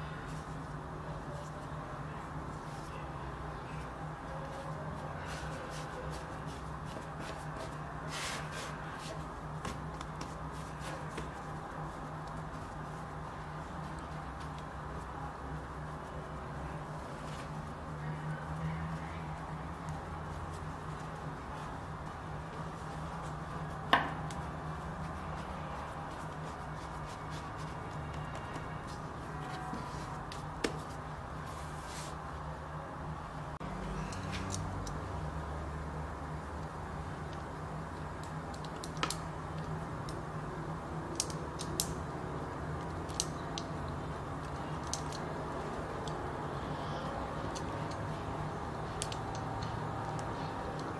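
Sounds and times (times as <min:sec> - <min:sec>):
hands rolling bread dough: 0:00.0 - 0:32.5.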